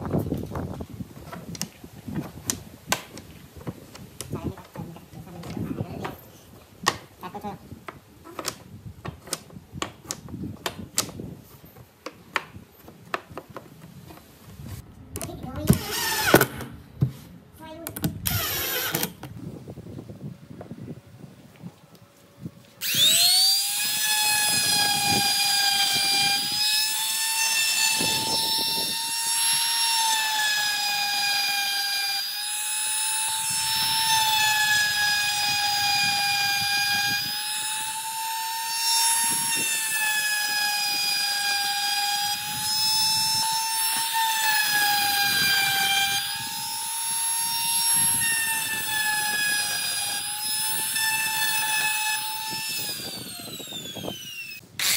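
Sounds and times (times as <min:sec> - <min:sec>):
electric router high whine: 0:18.3 - 0:19.2, 0:21.7 - 0:54.9.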